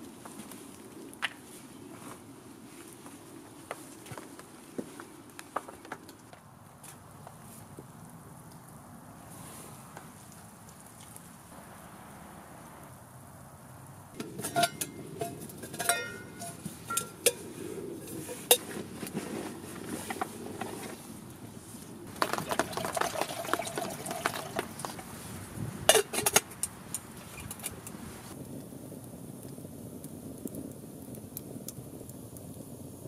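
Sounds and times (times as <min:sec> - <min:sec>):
lid clanking onto pot: 0:14.2 - 0:17.4, 0:25.9 - 0:26.5
metal lid clinking on pot: 0:14.2 - 0:18.9, 0:25.9 - 0:26.5.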